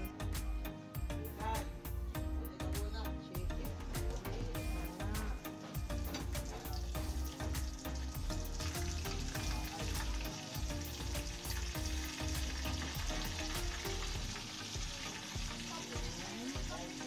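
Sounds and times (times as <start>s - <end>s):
chicken sizzling in hot oil: 3.8s - 17.0s.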